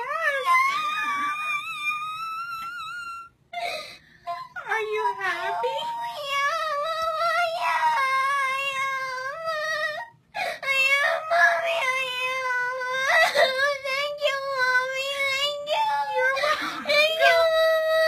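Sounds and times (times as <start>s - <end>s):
girl crying with high wails: 0.0s - 13.9s.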